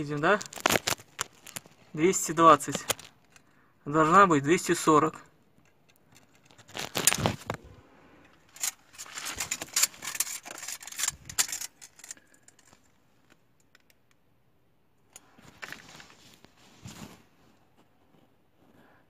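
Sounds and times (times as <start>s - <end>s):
tape measure rattling on bricks: 8.5s - 12.8s.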